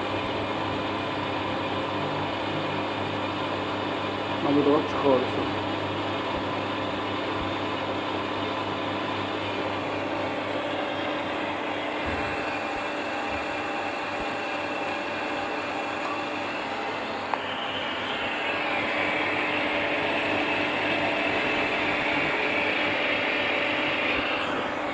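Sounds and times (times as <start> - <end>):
electric water pump humming: 0.0 - 24.9
person talking: 4.4 - 5.6.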